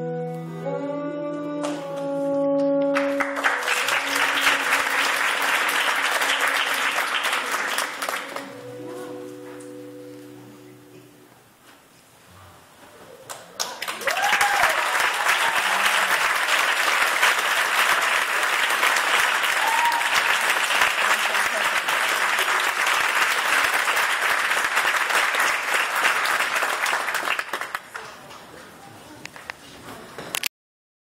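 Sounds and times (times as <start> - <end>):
audience applause: 2.9 - 8.6, 13.3 - 28.3.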